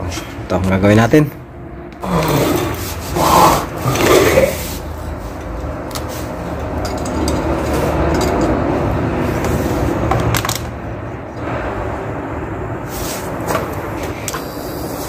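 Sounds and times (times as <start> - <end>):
gas torch hissing: 12.8 - 15.0.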